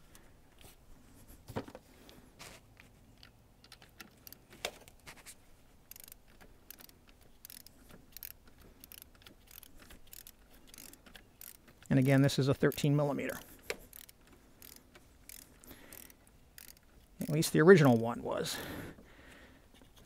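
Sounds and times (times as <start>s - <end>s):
torque wrench ratchet clicking: 5.9s - 18.0s.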